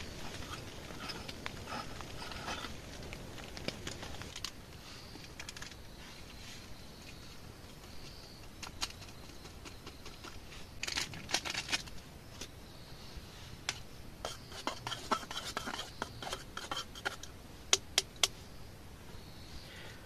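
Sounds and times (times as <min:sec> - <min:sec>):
camp cookware clicking and scraping: 0:00.0 - 0:06.0, 0:07.6 - 0:12.6, 0:13.6 - 0:18.4.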